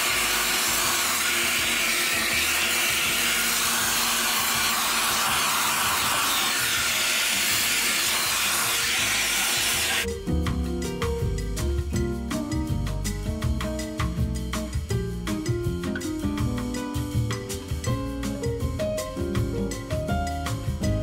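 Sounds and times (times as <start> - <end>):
vacuum cleaner running: 0.0 - 10.1
music: 0.0 - 21.0.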